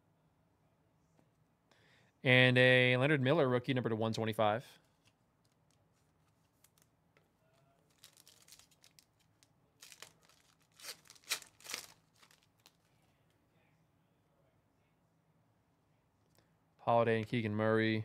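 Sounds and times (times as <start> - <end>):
plastic rustles and clicks: 7.5 - 13.0
plastic wrapper tearing: 7.8 - 12.9.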